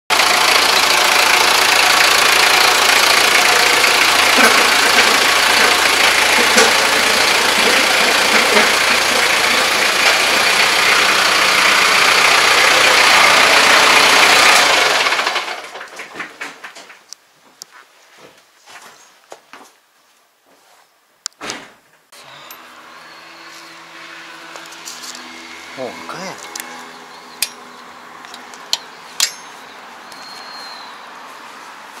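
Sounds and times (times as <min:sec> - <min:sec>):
diesel tractor engine idling: 0:00.1 - 0:15.9, 0:22.2 - 0:30.2.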